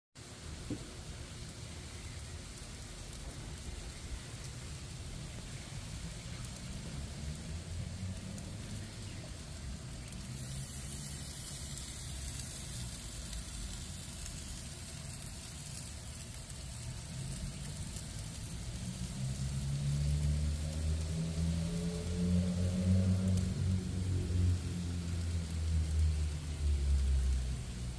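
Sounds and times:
fish sizzling on a grill: 0.2s - 27.9s.

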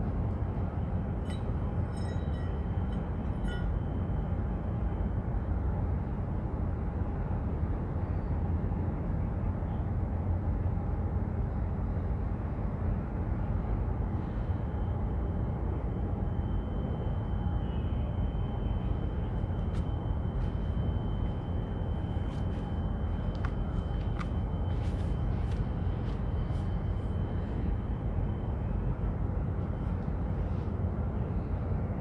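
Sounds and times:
faint steady hum: 0.0s - 32.0s
low harbour rumble: 0.0s - 32.0s.

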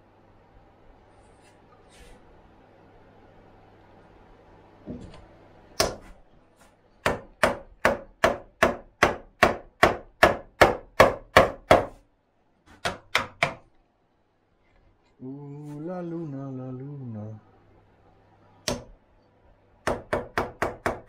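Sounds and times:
wooden mallet striking chisel: 5.8s - 6.1s, 7.0s - 12.0s, 12.7s - 13.7s, 18.6s - 19.0s, 19.8s - 21.0s.

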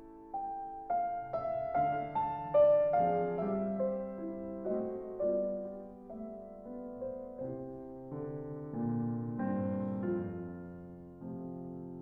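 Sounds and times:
slow soft piano music: 0.0s - 12.0s.

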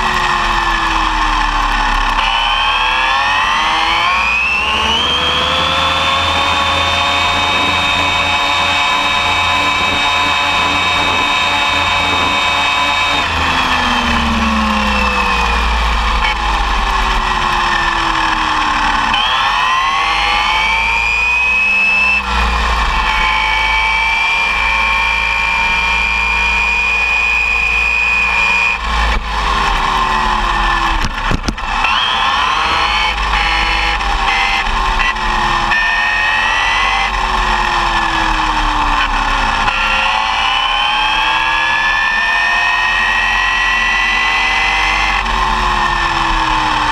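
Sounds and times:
rc buggy motor whining: 0.0s - 46.9s
steady low rumble: 4.7s - 18.9s.

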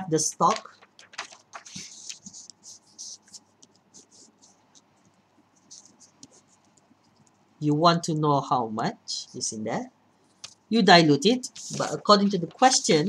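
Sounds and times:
pen scratching on paper: 1.8s - 4.6s, 5.6s - 6.8s.

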